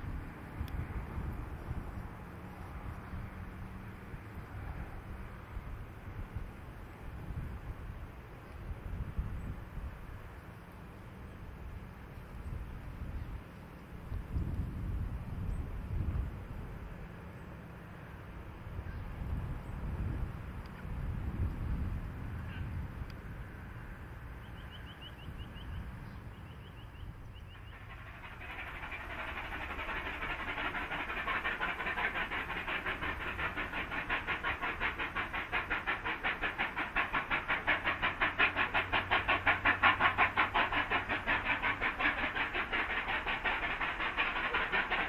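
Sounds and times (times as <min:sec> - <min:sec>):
steam locomotive exhaust beats: 0:23.1 - 0:45.0.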